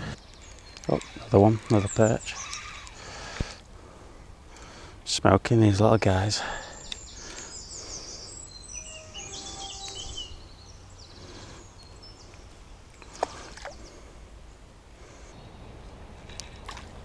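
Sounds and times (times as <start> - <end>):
low outdoor background: 0.0 - 17.0
high bird chirping: 6.8 - 11.2.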